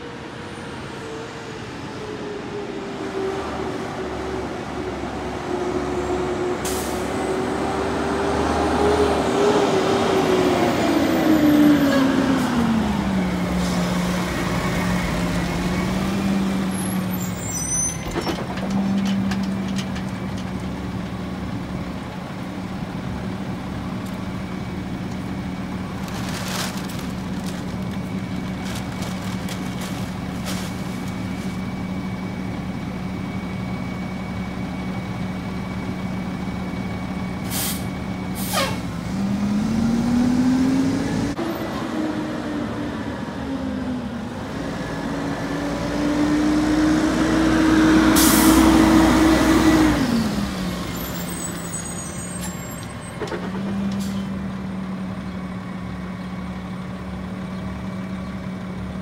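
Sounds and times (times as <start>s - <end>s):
air brakes hissing: 6.6s - 7.2s, 37.4s - 38.9s, 48.2s - 48.7s.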